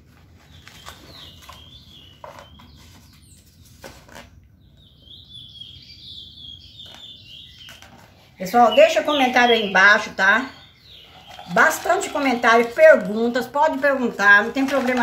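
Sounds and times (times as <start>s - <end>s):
bird calling long high notes: 8.4s - 12.5s.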